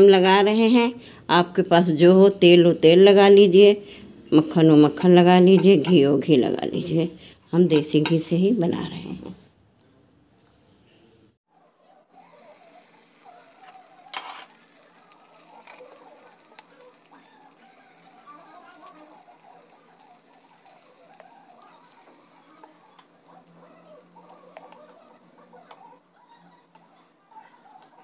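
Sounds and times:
batter sizzling and crackling: 0:11.5 - 0:28.0.

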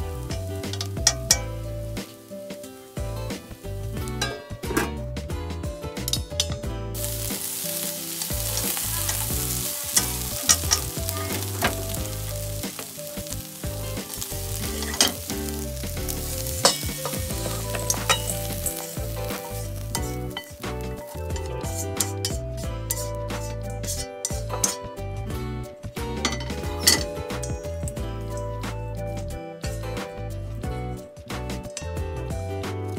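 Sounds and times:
food sizzling in a frying pan: 0:00.0 - 0:04.6, 0:06.9 - 0:24.8.

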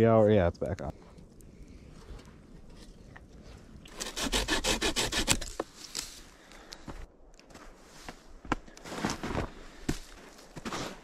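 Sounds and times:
hand saw rasping through branch: 0:03.9 - 0:05.6.

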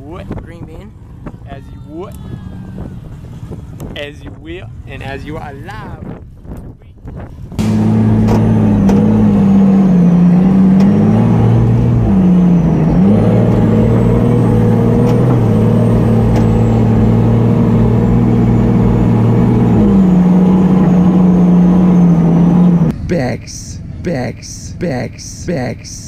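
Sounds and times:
truck engine running loudly: 0:07.5 - 0:26.0.

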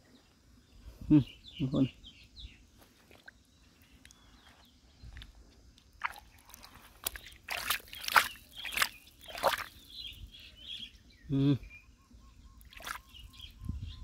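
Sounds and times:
mud and water squelching: 0:02.9 - 0:10.0, 0:12.6 - 0:13.2.

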